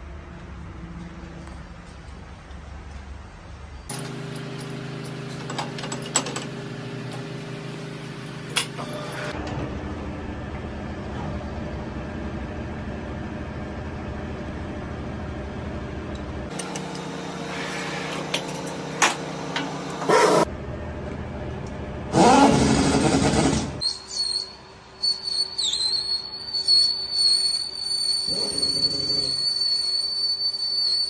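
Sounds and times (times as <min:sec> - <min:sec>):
machinery humming: 0:03.9 - 0:23.9.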